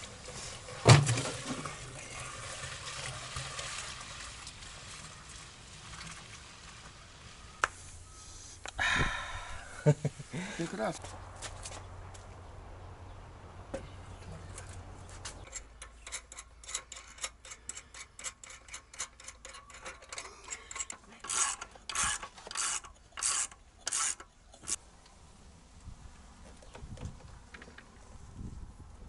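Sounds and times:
wrench scraping on metal: 15.3s - 24.8s.

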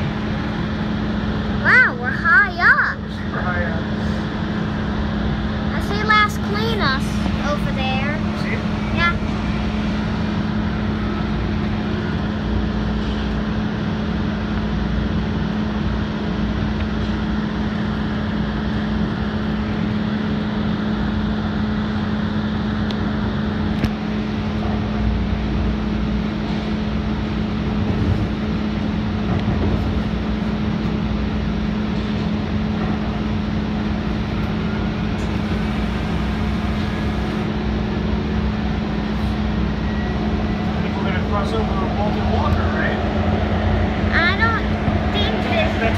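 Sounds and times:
constant low hum: 0.0s - 45.9s
wheels rumbling on rail: 0.0s - 45.9s.

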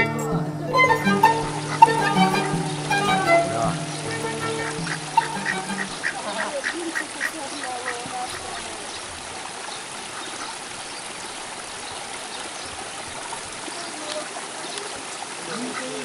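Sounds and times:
ducks quacking: 0.0s - 9.1s, 15.4s - 16.0s
steady background hiss: 0.0s - 15.9s.

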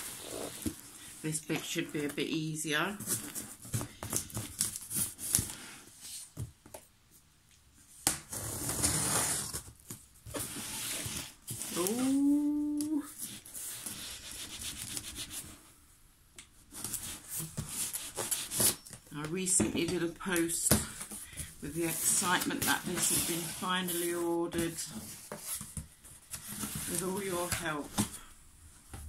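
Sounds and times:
cardboard rubbing: 10.4s - 15.6s
tape tearing: 16.8s - 18.9s.

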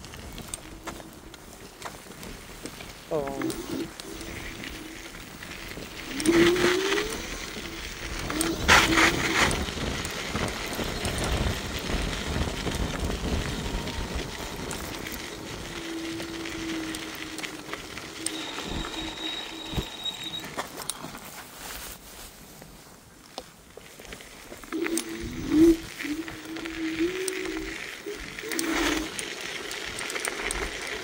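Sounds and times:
electric scooter motor whine: 0.0s - 21.8s, 23.8s - 31.0s
wind and tyre rush: 0.0s - 31.0s.

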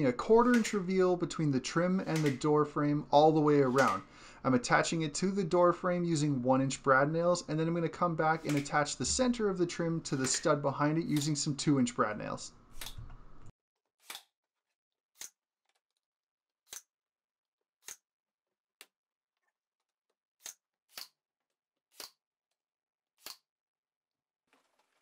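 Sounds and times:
nail gun firing: 0.4s - 0.8s, 2.0s - 2.5s, 3.7s - 4.1s, 8.4s - 8.8s.

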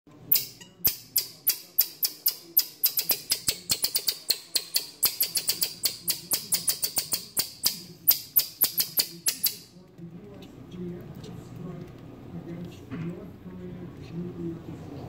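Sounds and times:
marmoset high-pitched calls: 8.1s - 9.7s.

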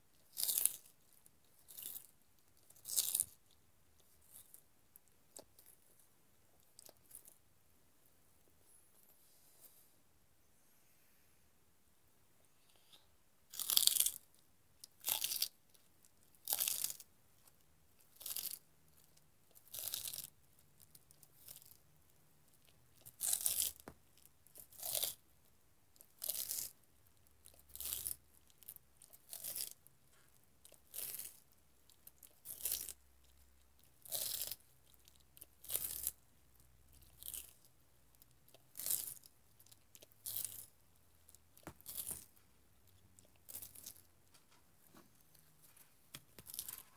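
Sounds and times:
tortoise crunching celery: 0.2s - 4.7s, 6.6s - 7.4s, 12.7s - 17.1s, 18.0s - 21.8s, 22.5s - 25.2s, 26.0s - 26.8s, 27.4s - 36.2s, 37.0s - 44.1s.

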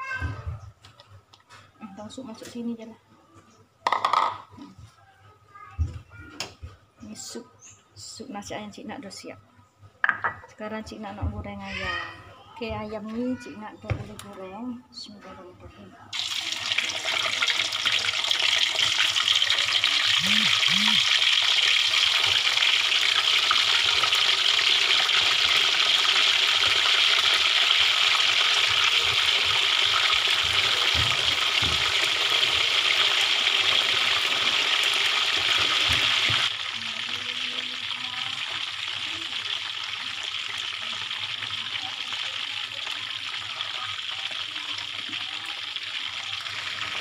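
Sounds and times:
chicken frying in oil: 16.1s - 47.0s.

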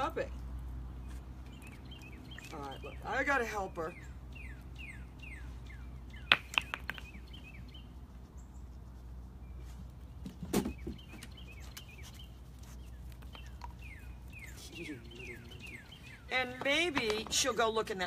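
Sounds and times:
low background hum: 0.0s - 18.0s
small bird chirping: 10.6s - 16.9s.

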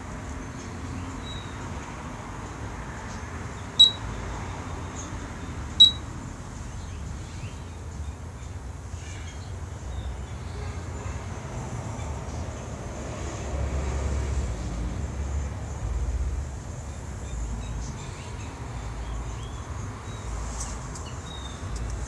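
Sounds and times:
high-pitched beeps: 3.8s - 4.0s, 5.8s - 6.0s.

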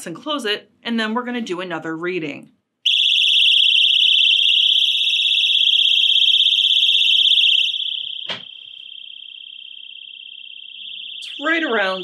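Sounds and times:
personal alarm high-pitched tone: 2.9s - 12.0s.

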